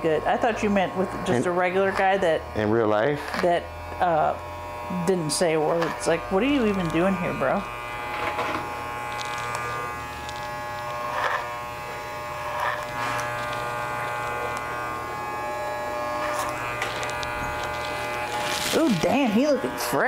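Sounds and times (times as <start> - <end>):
hair clippers buzzing: 0.0 - 20.0
clippers rasping: 3.2 - 4.0, 5.0 - 19.9.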